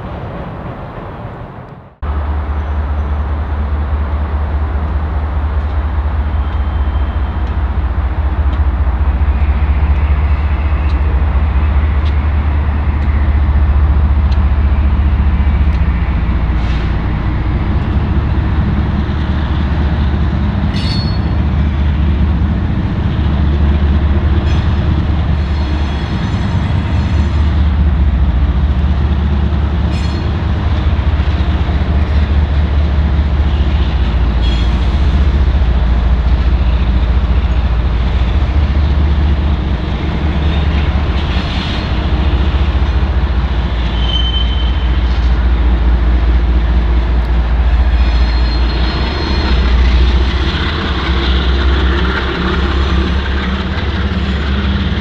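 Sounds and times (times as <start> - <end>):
locomotive engines rumbling: 0.0 - 55.0
high wheel squeal: 20.7 - 21.4, 43.8 - 45.2, 47.8 - 50.2.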